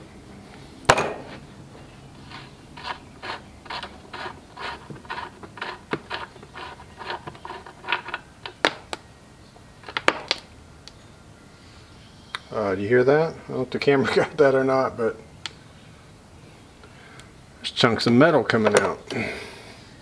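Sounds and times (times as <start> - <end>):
sharp metal clack: 0.9 - 1.3
drain plug scraping: 2.2 - 9.0.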